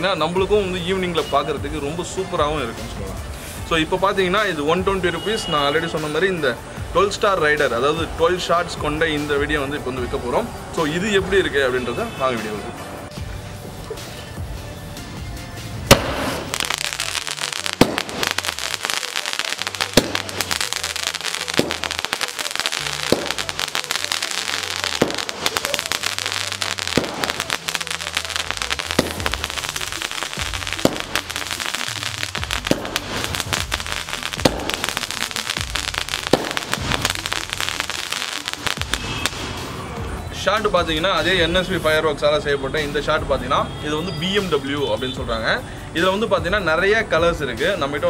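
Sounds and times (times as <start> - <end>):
crackling hissing sparks: 15.9 - 39.9
firework bangs: 15.9 - 40.0.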